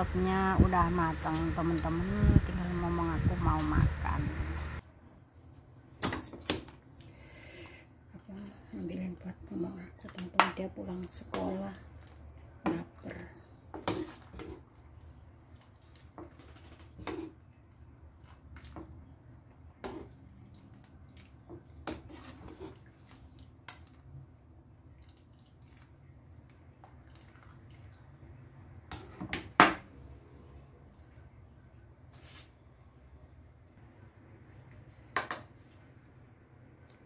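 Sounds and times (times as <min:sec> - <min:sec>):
low steady hum: 0:00.0 - 0:06.0.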